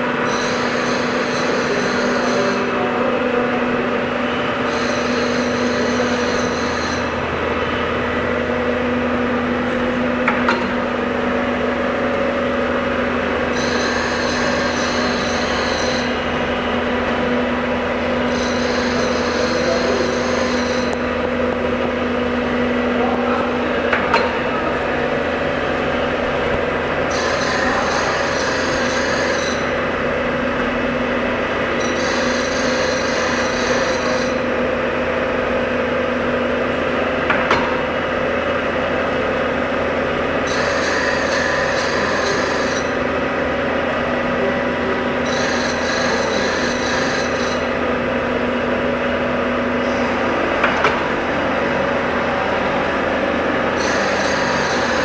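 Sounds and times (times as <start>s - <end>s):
grinder humming: 0.0s - 55.0s.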